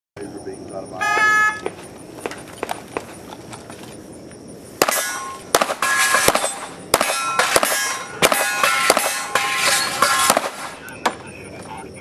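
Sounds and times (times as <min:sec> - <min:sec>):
metallic ringing: 0:01.0 - 0:01.7, 0:04.8 - 0:10.9
pistol shots: 0:04.8 - 0:10.9.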